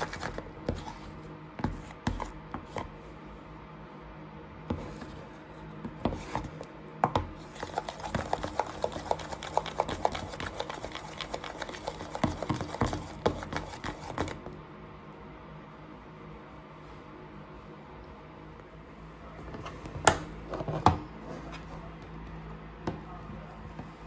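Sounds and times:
spoon stirring slime: 0:00.0 - 0:03.2, 0:04.7 - 0:14.5.

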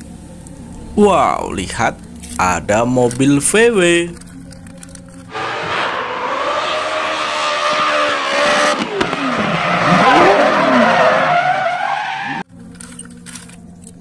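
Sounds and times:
tyres on gravel: 0:02.0 - 0:12.4
rally car engine revving: 0:05.3 - 0:12.4.

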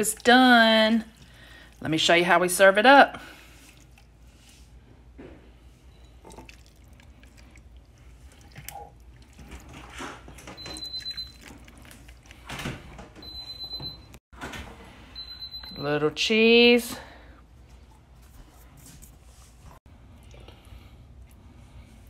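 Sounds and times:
wet plops and drips of soup: 0:03.4 - 0:04.2, 0:06.0 - 0:09.9, 0:10.6 - 0:12.4.

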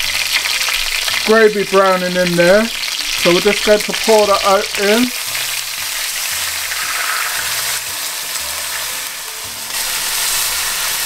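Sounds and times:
liquid sizzling in hot pot: 0:00.0 - 0:11.0
liquid pouring into pot: 0:06.5 - 0:07.6.

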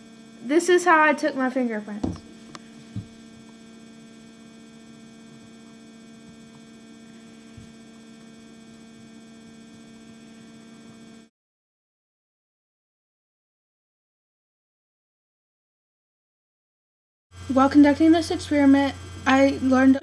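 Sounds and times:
electrical mains hum: 0:00.0 - 0:11.3, 0:17.3 - 0:20.0.

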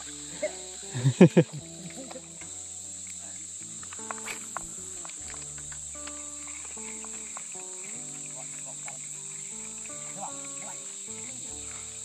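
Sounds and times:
insects chorus: 0:00.0 - 0:12.0
low musical notes: 0:00.0 - 0:12.0.

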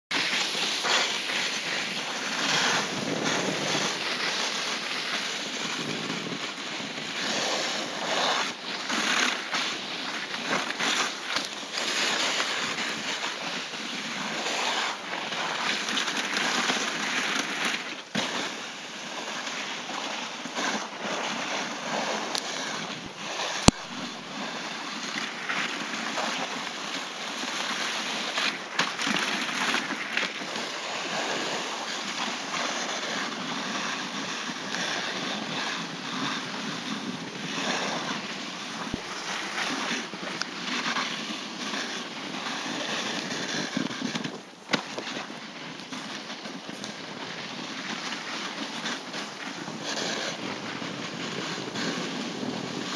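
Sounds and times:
sledge runners hissing over snow: 0:00.1 - 0:52.9
wind on microphone: 0:00.2 - 0:09.1, 0:32.8 - 0:52.9.

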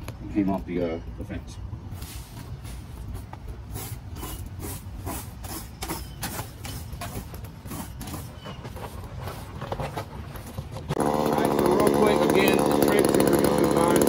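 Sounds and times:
plastic rake scraping clippings: 0:03.7 - 0:14.0.

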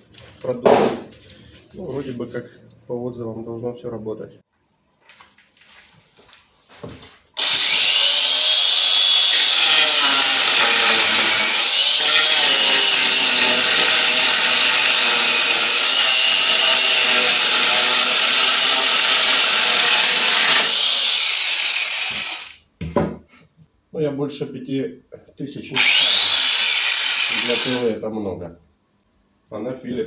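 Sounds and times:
chain cutting wood: 0:07.4 - 0:22.5
grinder motor whine: 0:07.4 - 0:22.6, 0:25.8 - 0:28.0.

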